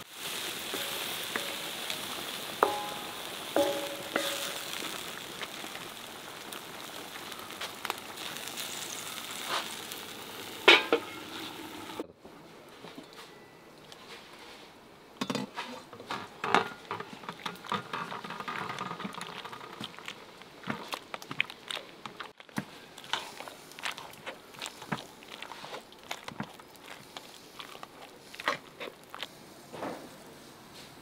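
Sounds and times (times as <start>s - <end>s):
metal pot lid lifted and set down: 10.6s - 11.3s
potato masher squashing potatoes: 17.5s - 29.3s.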